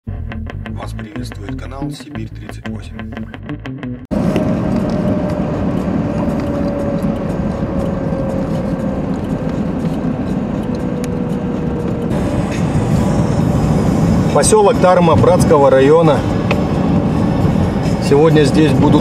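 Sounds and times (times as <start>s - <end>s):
car road and engine rumble: 4.1s - 19.0s
faint whine dropping in pitch: 4.2s - 17.1s.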